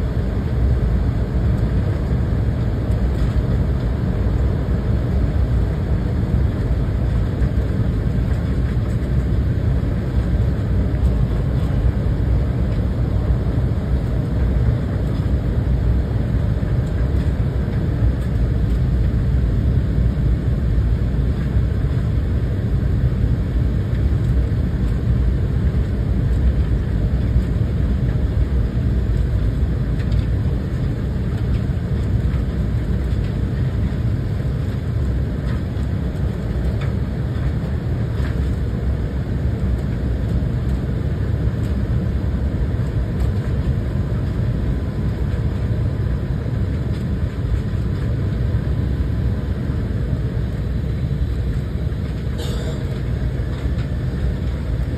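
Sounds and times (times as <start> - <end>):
airliner cabin rumble: 0.0 - 54.9.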